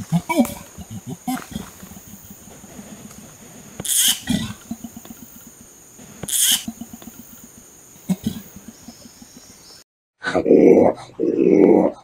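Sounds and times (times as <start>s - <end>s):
orangutan hissing: 0.0s - 9.0s.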